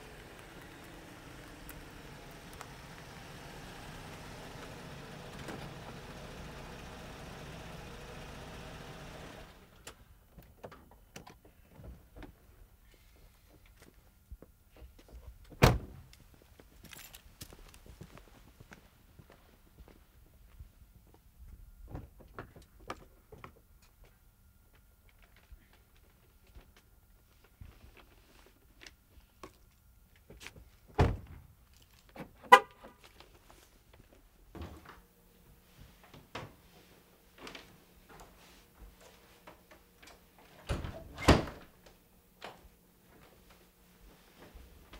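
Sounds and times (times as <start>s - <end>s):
car engine idling: 0.0s - 9.8s
short car horn beep: 32.5s - 32.8s.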